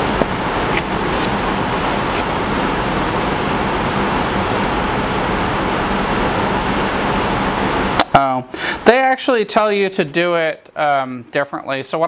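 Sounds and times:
steady rushing noise: 0:00.0 - 0:08.0
low hum: 0:00.0 - 0:08.1
paper crinkling: 0:00.7 - 0:01.4.

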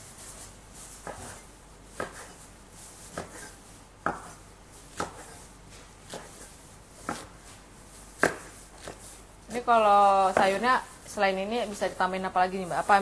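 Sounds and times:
knife chopping on wooden board: 0:01.0 - 0:02.4, 0:03.0 - 0:07.5, 0:08.2 - 0:09.1, 0:10.3 - 0:10.6.

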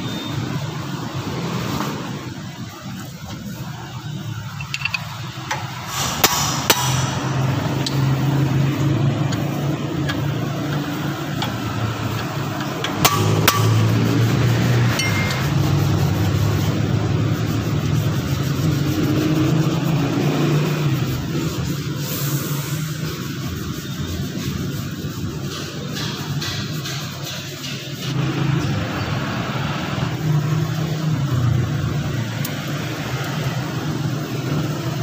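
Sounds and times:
wrench clinking on bolts: 0:04.5 - 0:05.7, 0:15.0 - 0:15.4.

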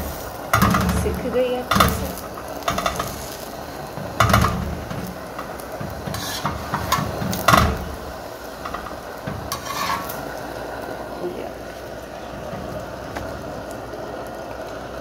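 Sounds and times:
metal tongs scraping a griddle: 0:00.0 - 0:10.5.

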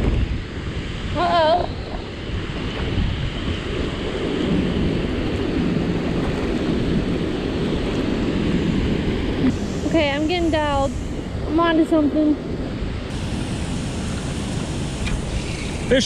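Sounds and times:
wind buffeting microphone: 0:00.0 - 0:16.0
water rushing from spillway: 0:13.1 - 0:16.0.

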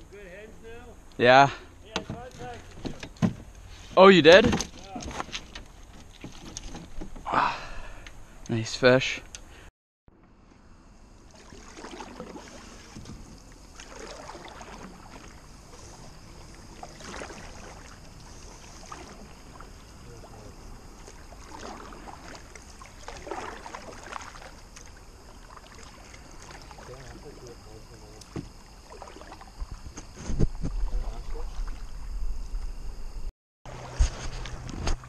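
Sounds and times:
paddle swishing through water: 0:11.2 - 0:32.1, 0:33.7 - 0:35.0.

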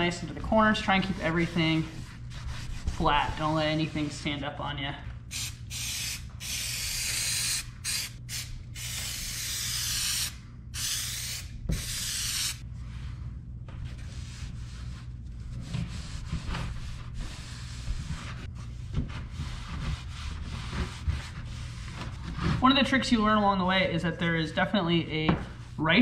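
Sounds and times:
rubbing fabric: 0:00.3 - 0:04.2
aerosol spray hissing: 0:05.3 - 0:12.6.

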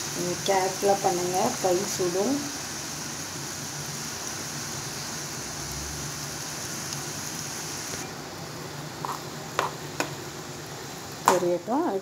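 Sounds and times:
hot oil sizzling and bubbling: 0:00.0 - 0:12.0.

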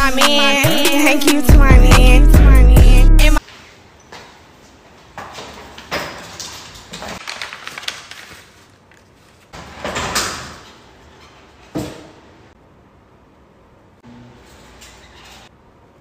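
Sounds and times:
household things rattling: 0:05.3 - 0:11.9.

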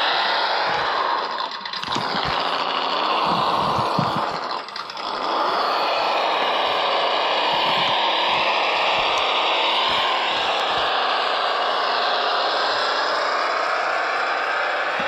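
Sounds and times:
small electric motor whine: 0:00.0 - 0:15.0.

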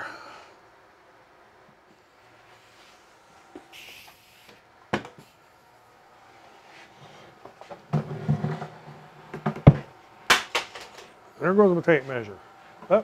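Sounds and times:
wood scraping and bumping on bench: 0:07.0 - 0:09.9.

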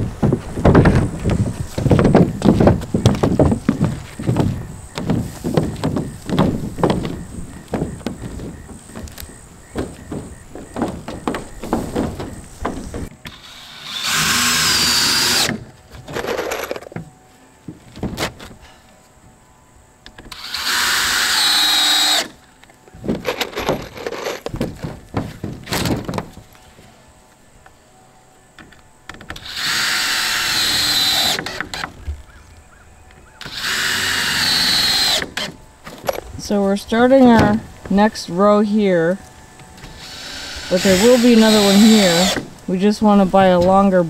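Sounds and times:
power driver whining: 0:00.0 - 0:18.7, 0:27.6 - 0:38.6, 0:39.2 - 0:44.0
knocks and clatter of handling: 0:00.2 - 0:13.2, 0:23.0 - 0:26.6.

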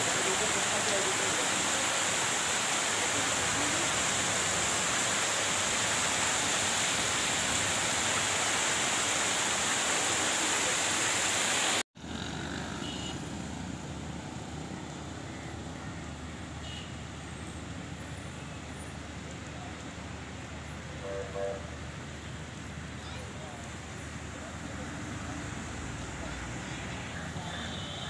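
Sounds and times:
floodwater rushing in heavy rain: 0:00.0 - 0:11.8, 0:19.1 - 0:28.0
traffic on a flooded road: 0:00.0 - 0:28.0.

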